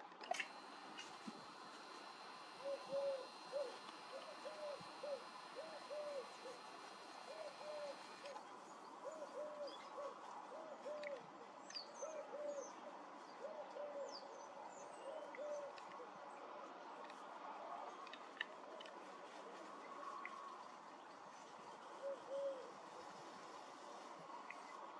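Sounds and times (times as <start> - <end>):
dove cooing: 0.4 - 8.4, 9.0 - 11.2, 15.1 - 15.7, 22.0 - 22.7
small birds chirping: 0.4 - 8.4.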